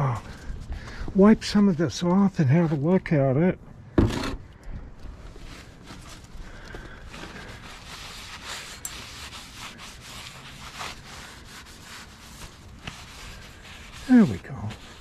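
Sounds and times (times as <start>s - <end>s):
rag rubbing on steel: 7.6s - 15.0s.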